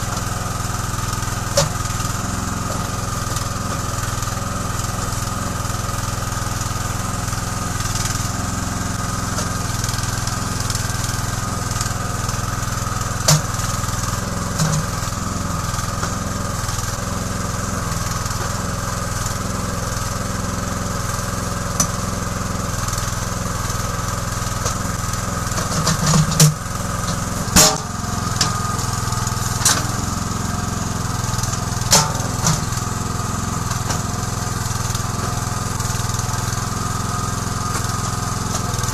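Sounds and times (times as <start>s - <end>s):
hydraulic whine: 0.0s - 38.9s
small engine running: 0.0s - 38.9s
bucket digging knocks: 25.5s - 29.0s, 31.8s - 32.7s.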